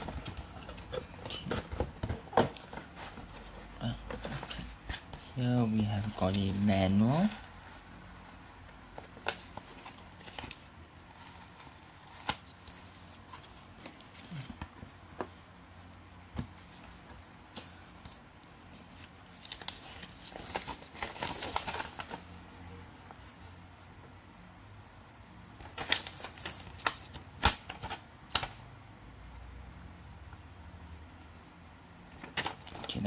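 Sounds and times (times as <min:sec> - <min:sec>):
paper crackling: 0:00.0 - 0:14.8, 0:18.0 - 0:22.4, 0:25.6 - 0:28.6, 0:32.2 - 0:33.0.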